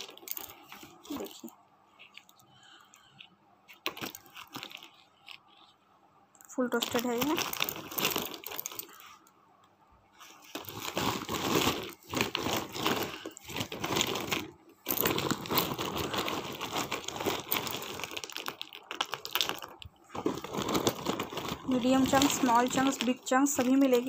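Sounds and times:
plastic sack rustling: 0.0 - 2.2, 6.8 - 9.1, 10.2 - 24.0
clay chunks clicking and scraping: 0.0 - 5.8, 10.2 - 24.0.

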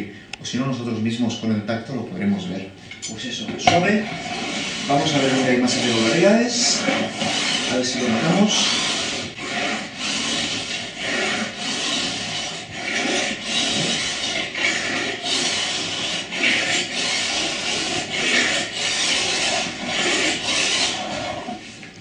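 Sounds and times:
file rasping along ski edge: 3.9 - 21.7.

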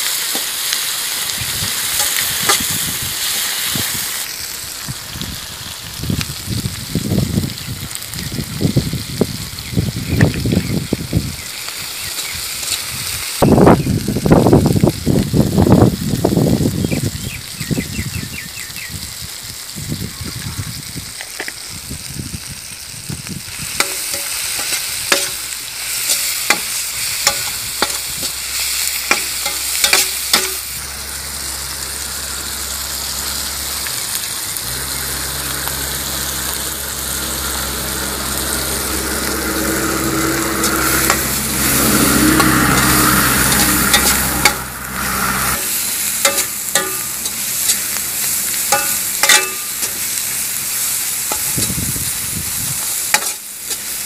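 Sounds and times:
vegetables sizzling in a wok: 0.0 - 54.0
metal spatula scraping wok: 0.1 - 4.9, 23.5 - 54.0.

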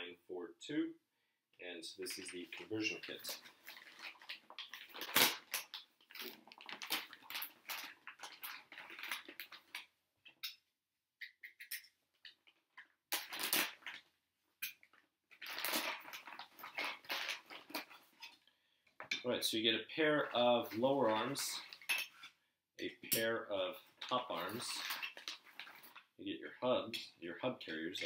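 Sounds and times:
plastic bag crinkling: 2.1 - 9.9, 13.2 - 14.1, 14.8 - 18.2, 23.8 - 26.1.

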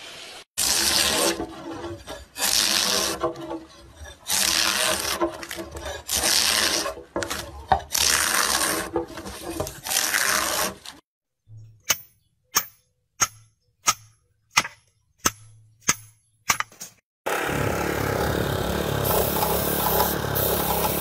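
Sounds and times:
drawknife scraping wood: 0.6 - 11.0.

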